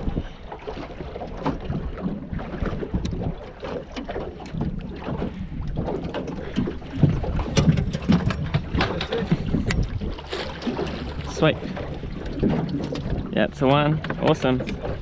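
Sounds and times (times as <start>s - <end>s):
water slapping boat hull: 0.0s - 15.0s
wind buffeting microphone: 0.0s - 15.0s
sharp knocks and clicks: 3.9s - 10.0s, 13.8s - 15.0s.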